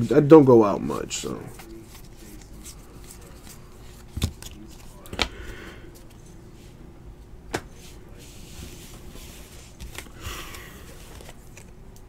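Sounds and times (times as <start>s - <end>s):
cards rustling: 1.2s - 6.3s, 8.3s - 12.0s.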